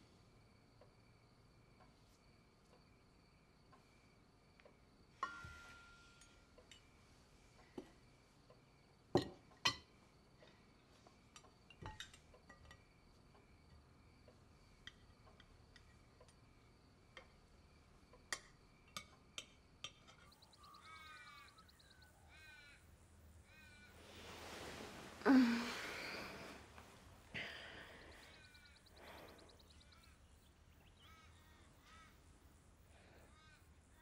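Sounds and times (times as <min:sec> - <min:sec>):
cutlery clinking on plates: 0:11.4 - 0:12.8.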